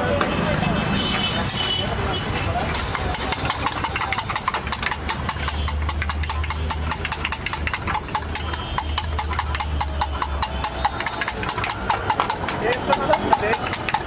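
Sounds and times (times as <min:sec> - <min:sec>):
spoon beating eggs in steel bowl: 0:02.8 - 0:14.0.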